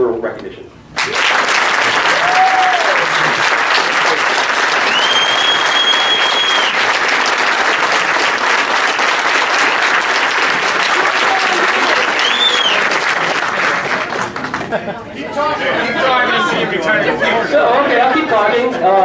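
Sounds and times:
audience applauding: 1.0s - 14.9s
person whooping: 2.1s - 3.2s, 4.8s - 6.8s, 11.0s - 12.9s
long high whistle: 4.8s - 6.8s, 12.2s - 12.9s.

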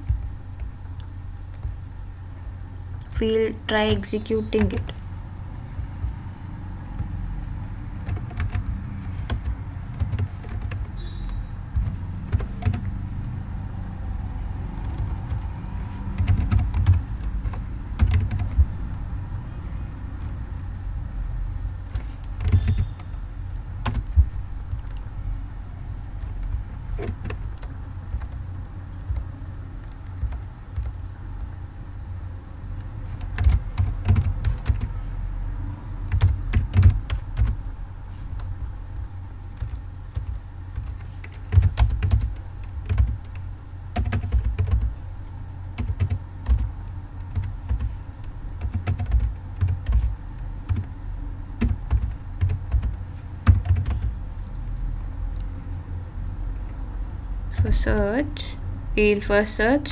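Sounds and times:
steady low hum: 0.0s - 59.9s
typing on computer keyboard: 7.0s - 13.4s, 14.7s - 19.0s, 20.2s - 20.4s, 21.8s - 23.2s, 23.8s - 25.0s, 26.2s - 31.0s, 32.8s - 34.9s, 36.1s - 37.6s, 39.6s - 44.9s, 45.8s - 50.9s, 51.6s - 54.2s.

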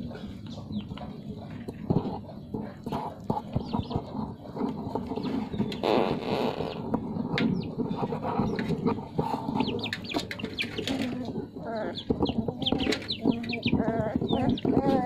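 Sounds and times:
puppies chewing and scuffling: 0.0s - 15.0s
puppies chirping: 0.0s - 15.0s
puppies squealing: 8.1s - 15.0s.

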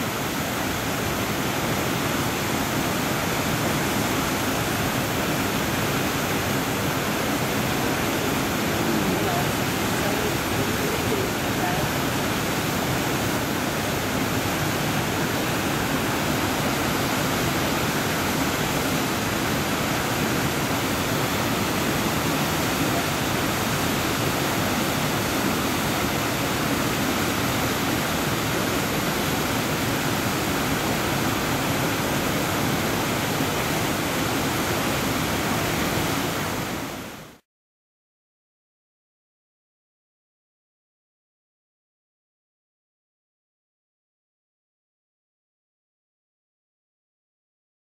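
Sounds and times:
waterfall and rapids rushing: 0.0s - 37.4s.

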